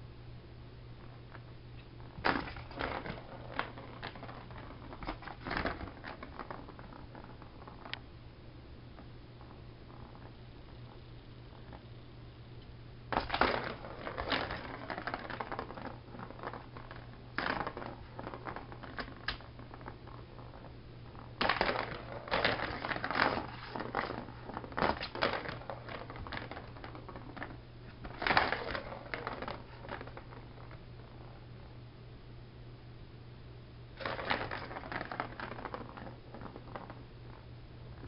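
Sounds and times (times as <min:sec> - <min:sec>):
ball rattling around plastic track: 0:02.0 - 0:08.0, 0:13.1 - 0:30.8, 0:34.0 - 0:38.0.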